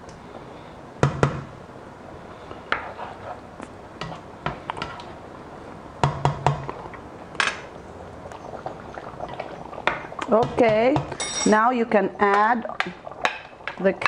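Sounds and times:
spoon clinking against steel pan: 11.2s - 11.6s.

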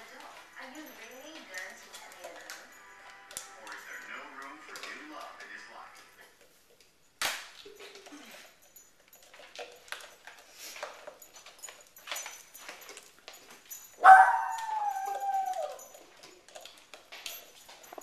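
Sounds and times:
dogs licking jars: 0.0s - 18.0s
dog whining: 14.0s - 16.2s.

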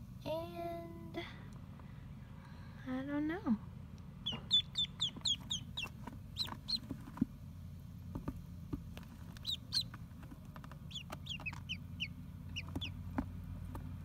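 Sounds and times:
steady low hum: 0.0s - 14.0s
ducklings peeping: 4.0s - 7.3s, 8.2s - 13.9s.

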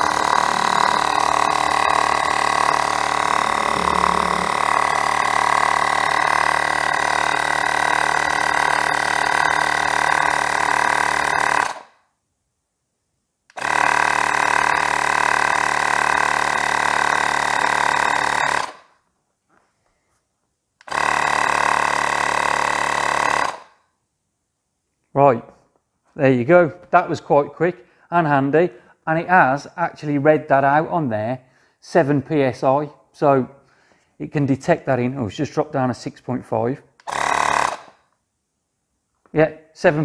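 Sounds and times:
mini air compressor running: 0.0s - 11.9s, 13.5s - 18.9s, 20.8s - 23.8s, 37.0s - 38.0s.

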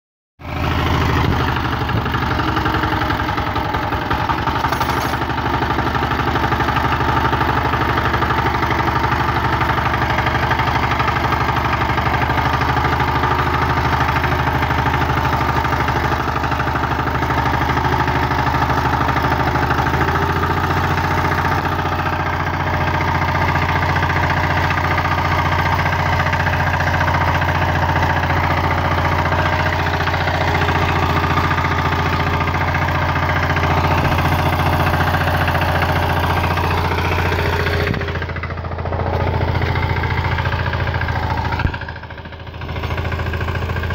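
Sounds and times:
walking tractor engine under load: 0.4s - 43.9s
knocking clatter: 4.1s - 5.5s.

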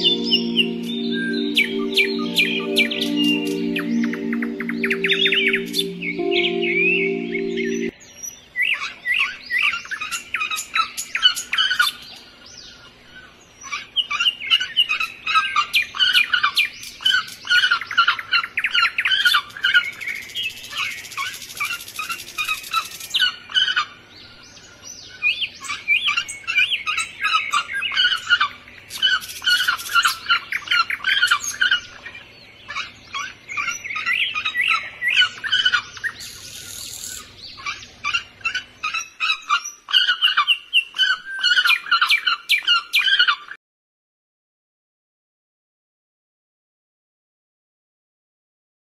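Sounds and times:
small birds chirping: 24.2s - 43.4s.

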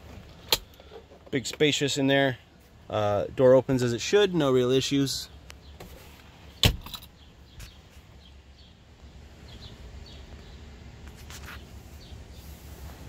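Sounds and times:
scratchy rustle: 11.1s - 11.8s.

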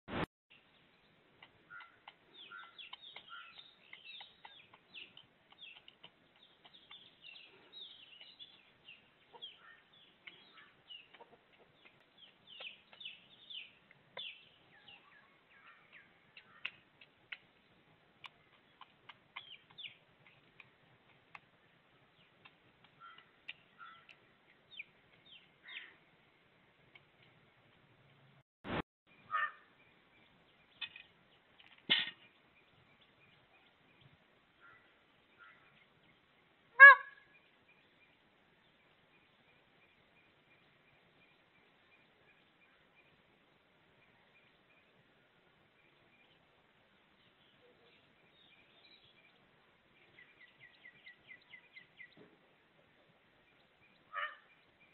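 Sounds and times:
brief burst of noise: 0.1s - 0.3s
bird singing high chirps: 1.0s - 11.2s
low steady hiss: 24.2s - 54.9s.

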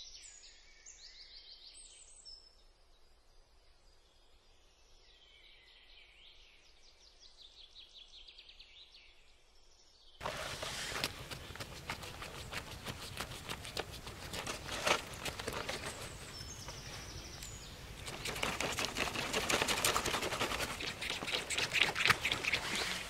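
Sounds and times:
knife scraping scaly hide: 10.2s - 23.0s.

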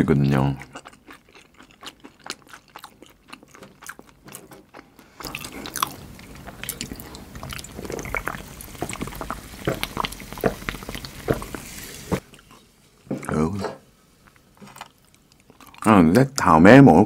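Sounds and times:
chewing: 0.2s - 12.7s, 14.2s - 15.9s
gulping swallows: 5.2s - 12.2s.

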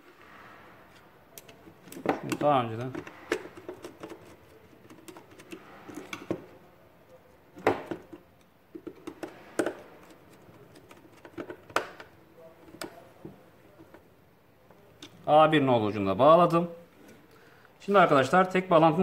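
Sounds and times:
plastic part clicks and knocks: 7.6s - 12.1s.

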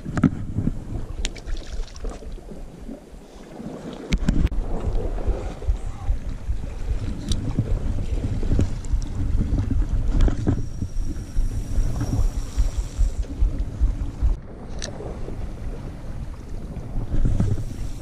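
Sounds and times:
wind buffeting microphone: 0.0s - 18.0s
thin high whine: 10.2s - 13.3s.

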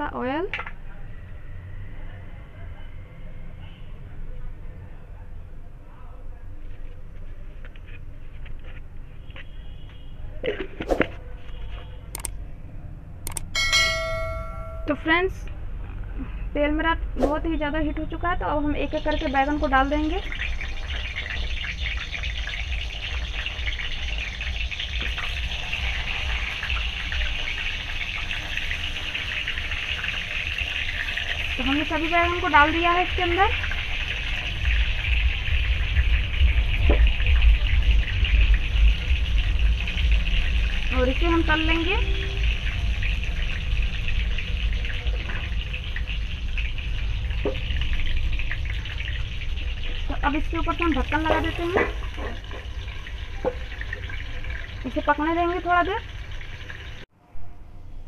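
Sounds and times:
vegetables sizzling in hot oil: 18.2s - 57.0s
constant low rumble: 31.5s - 58.0s.

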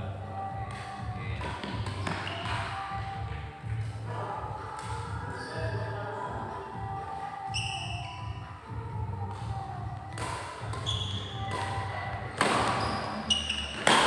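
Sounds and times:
shoes squeaking on court: 1.4s - 3.0s, 7.4s - 8.5s, 9.3s - 14.0s
racket striking shuttlecock: 10.1s - 14.0s.

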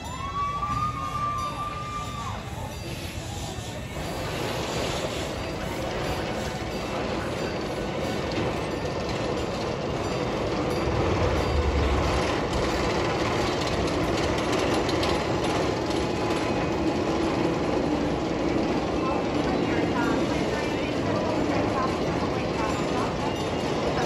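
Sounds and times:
steam locomotive running slowly: 0.0s - 24.0s
wheels on rails: 0.0s - 24.0s.

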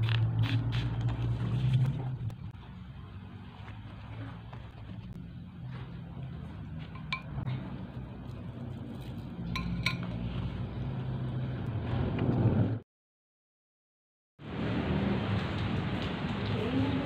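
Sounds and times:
vehicle interior rumble: 0.0s - 12.8s.

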